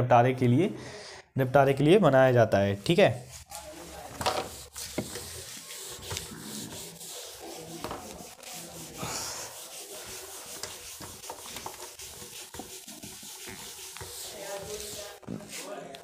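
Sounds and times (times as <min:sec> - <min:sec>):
pen scratching on paper: 0:04.2 - 0:15.8.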